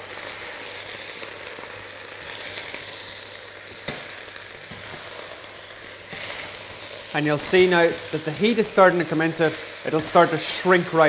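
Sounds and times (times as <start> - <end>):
spinach sizzling in a saucepan: 0.0 - 11.0
metal tongs turning leaves: 3.8 - 11.0.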